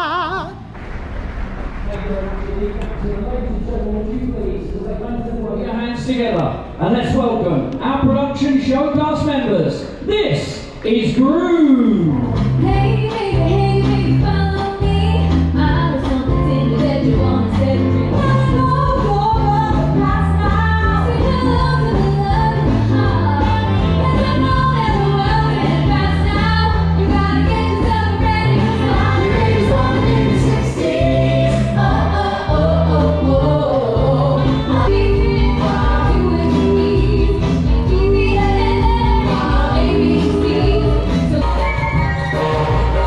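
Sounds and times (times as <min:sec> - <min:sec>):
amplified backing track with bass: 0:11.7 - 0:43.0
men and women singing: 0:12.6 - 0:43.0.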